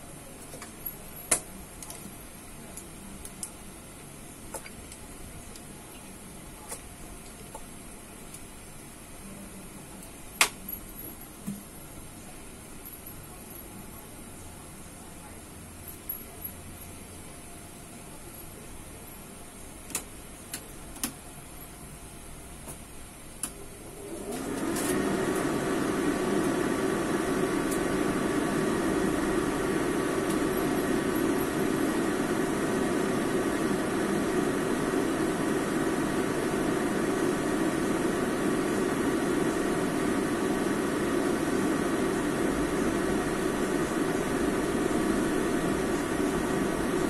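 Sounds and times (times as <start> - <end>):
kitchen fan motor whirring: 23.9 - 47.0.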